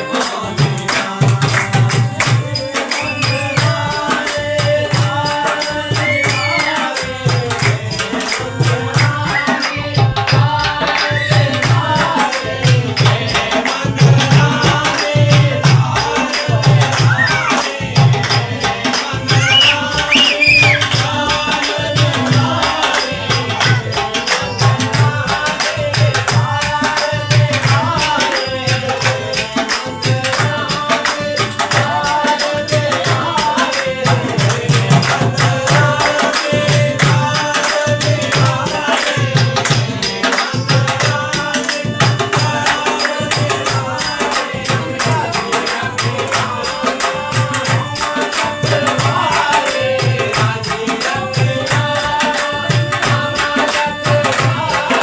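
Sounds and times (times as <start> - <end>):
harmonium chords: 0.0 - 5.8, 17.6 - 55.0
jingling hand percussion: 0.0 - 55.0
person singing: 0.0 - 55.0
tabla beat: 0.0 - 55.0.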